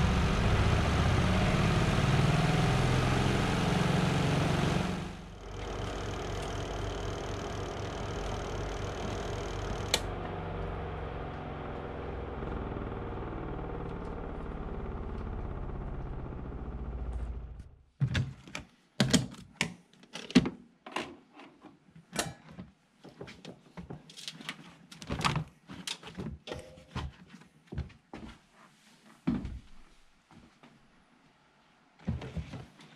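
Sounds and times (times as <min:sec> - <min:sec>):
washing machine motor running: 0:00.0 - 0:17.7.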